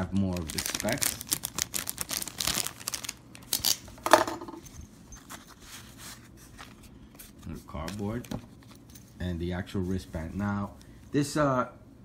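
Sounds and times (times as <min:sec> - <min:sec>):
plastic packaging crinkling: 0:00.0 - 0:04.1.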